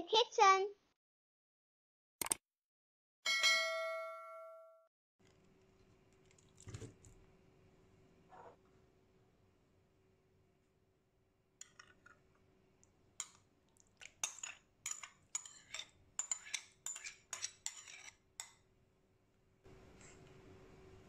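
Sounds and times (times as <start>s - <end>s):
metal spoon clinking and scraping: 14.0s - 18.6s.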